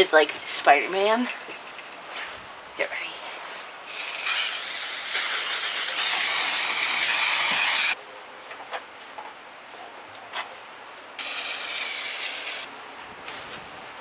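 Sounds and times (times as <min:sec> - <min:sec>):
aerosol can spraying: 0:03.9 - 0:08.0, 0:11.2 - 0:12.7.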